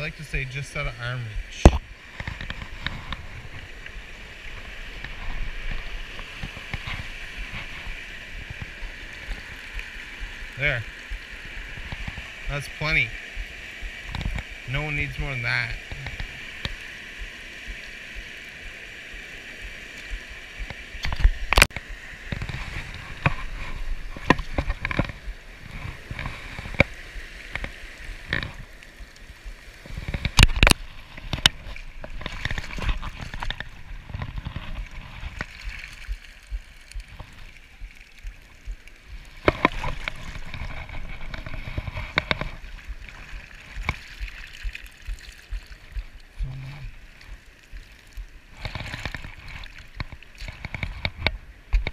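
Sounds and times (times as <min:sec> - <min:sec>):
stream water rushing and gurgling: 0:00.0 - 0:51.9
net splashing through water: 0:29.4 - 0:51.0.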